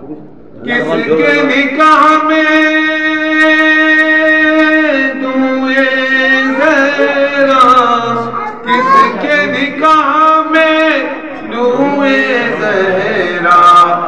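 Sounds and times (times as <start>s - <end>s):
man singing: 0.6s - 14.0s.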